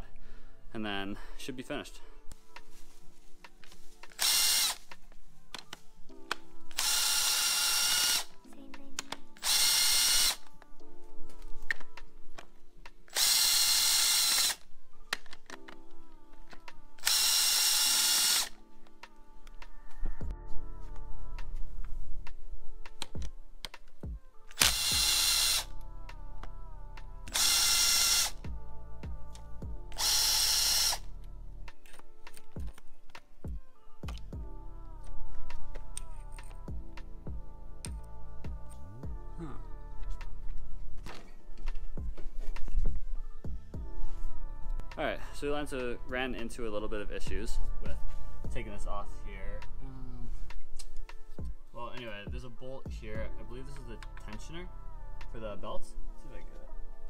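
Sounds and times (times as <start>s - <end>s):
soft background music: 0.0s - 57.0s
impact driver bursts: 4.2s - 4.9s, 6.7s - 8.3s, 9.4s - 10.4s, 13.1s - 14.6s, 17.0s - 18.5s, 24.5s - 25.7s, 27.3s - 28.4s, 29.9s - 31.0s.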